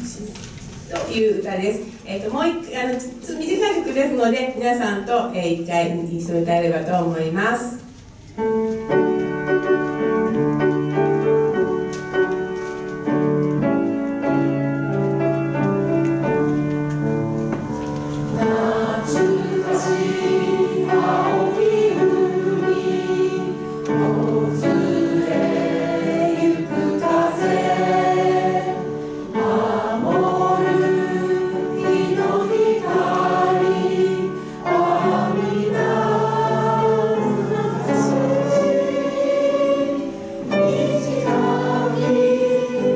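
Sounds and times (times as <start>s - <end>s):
piano accompaniment: 0.0s - 42.9s
group singing in unison: 18.4s - 42.9s.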